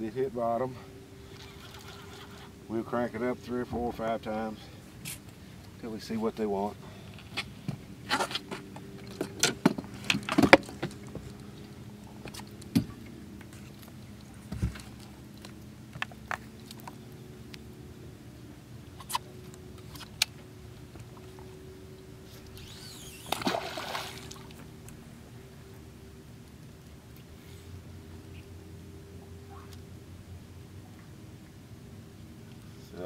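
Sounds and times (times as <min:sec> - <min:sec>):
faint steady hum: 0:00.0 - 0:33.0
sinker splashing into water: 0:23.0 - 0:24.8.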